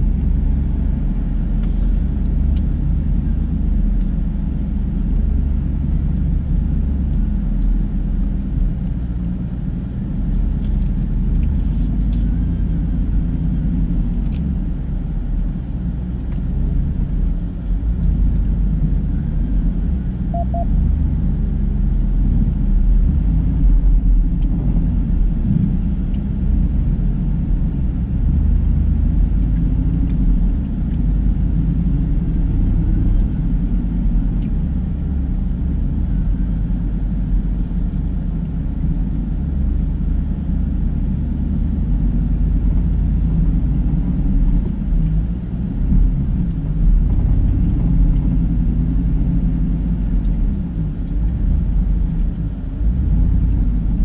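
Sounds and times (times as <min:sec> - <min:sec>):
truck engine low rumble: 0:00.0 - 0:54.0.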